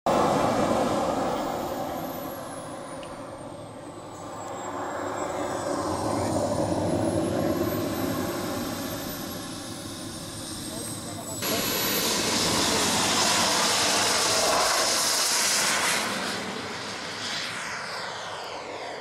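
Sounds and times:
model jet fan whine: 0:00.1 - 0:19.0.

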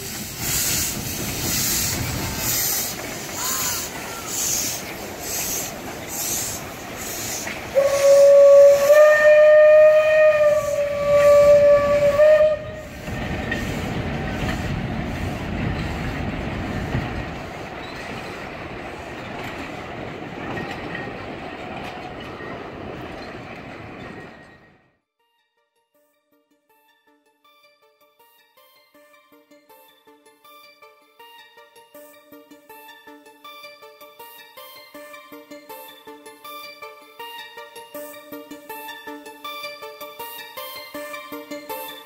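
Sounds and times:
steam locomotive puffing: 0:00.0 - 0:21.2
carriages rumbling on track: 0:00.0 - 0:24.9
steam whistle blast: 0:07.1 - 0:13.1.

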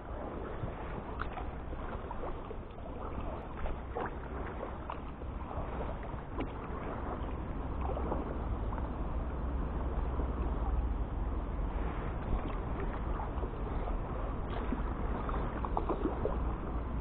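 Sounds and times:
paddle splashing in water: 0:00.0 - 0:17.0
wind rumble on microphone: 0:00.0 - 0:17.0.

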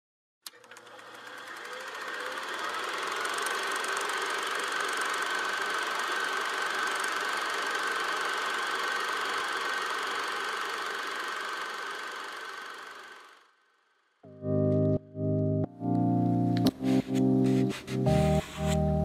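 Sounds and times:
small electric motor whining: 0:00.5 - 0:13.5, 0:16.8 - 0:18.9.

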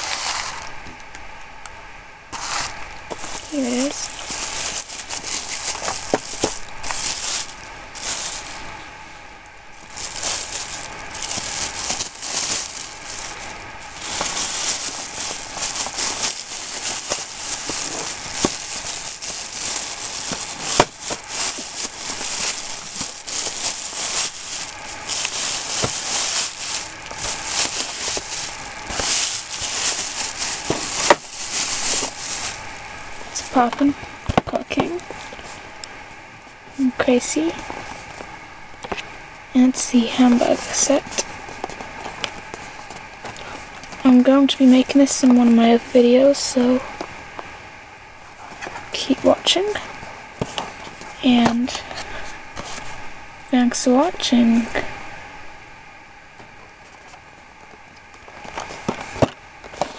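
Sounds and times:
plastic bag crinkling: 0:00.0 - 0:00.8, 0:02.4 - 0:47.5, 0:48.3 - 0:55.0, 0:58.0 - 0:59.9.

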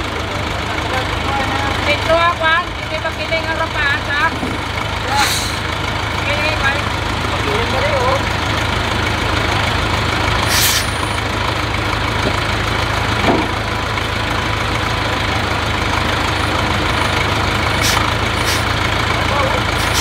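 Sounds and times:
heavy diesel engine idling: 0:00.0 - 0:20.0
short hisses: 0:05.2 - 0:05.6, 0:10.5 - 0:11.0, 0:17.8 - 0:18.7.

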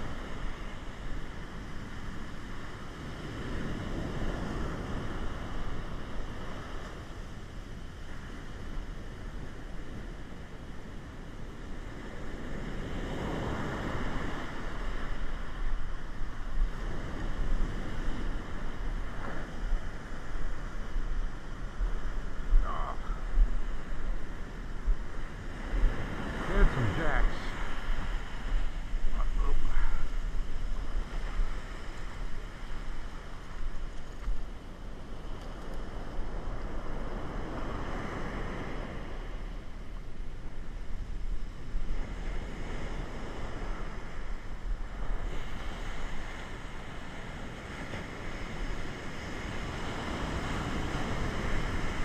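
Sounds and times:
wind buffeting microphone: 0:00.0 - 0:52.0
heavy surf breaking: 0:11.9 - 0:33.9, 0:35.9 - 0:52.0.

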